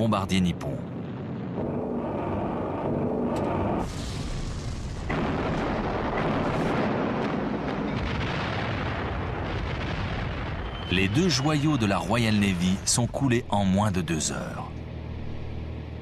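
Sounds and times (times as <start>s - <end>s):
propeller aircraft engine drone: 0.0s - 6.5s, 13.8s - 16.0s
explosions and gunfire: 0.8s - 13.2s.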